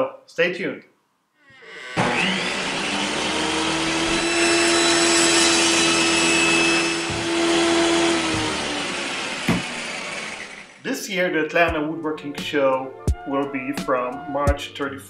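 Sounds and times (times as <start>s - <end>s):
circular saw whirring: 1.4s - 10.8s.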